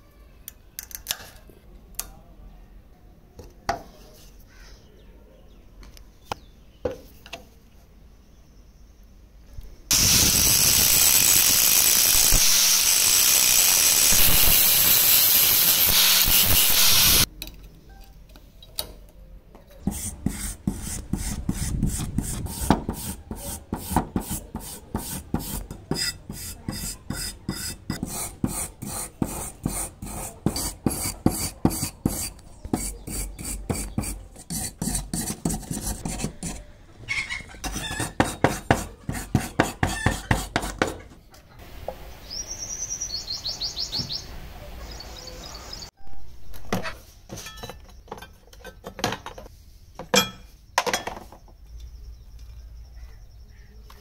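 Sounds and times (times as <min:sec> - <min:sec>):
angle grinder grinding metal: 0:09.9 - 0:17.3
wire brush scrubbing metal: 0:09.9 - 0:17.3, 0:19.8 - 0:36.6
bird chirping: 0:42.0 - 0:45.9.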